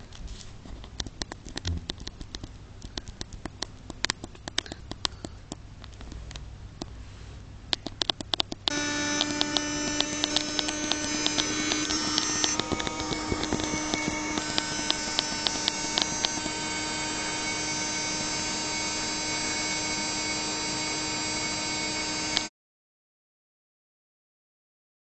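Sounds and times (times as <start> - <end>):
low hum: 8.7 - 22.5
vacuum cleaner motor whine: 8.7 - 22.5.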